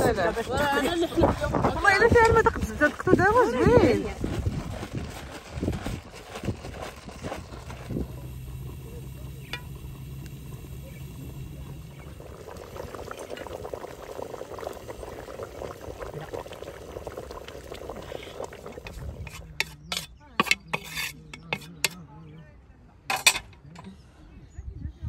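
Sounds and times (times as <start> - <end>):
grains rustling by hand: 2.6 - 9.4.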